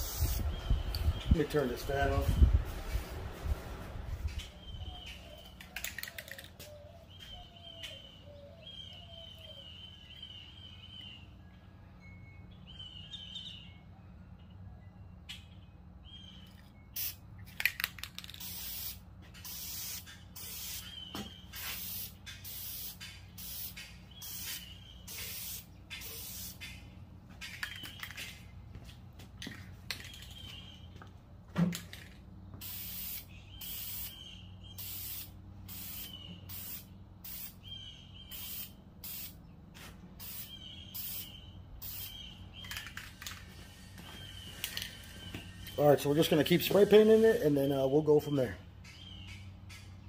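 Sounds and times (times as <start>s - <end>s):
aerosol paint spray hissing: 0.0s - 0.4s, 18.2s - 26.6s, 32.6s - 37.6s, 38.3s - 39.4s, 40.2s - 42.3s.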